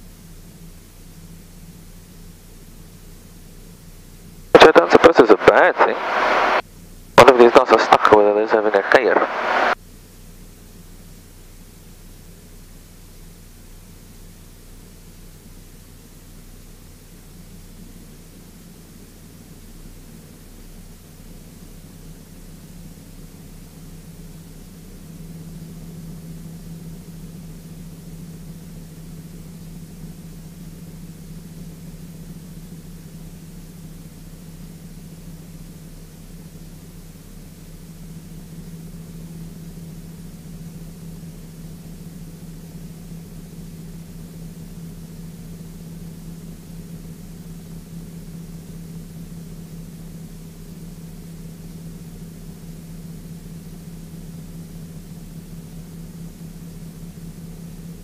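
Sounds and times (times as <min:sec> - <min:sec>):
aircraft engine and propeller droning: 0:00.0 - 0:58.0.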